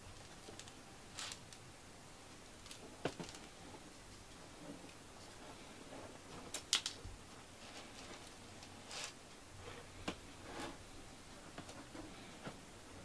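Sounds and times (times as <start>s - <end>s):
cat raking litter: 7.6s - 9.2s.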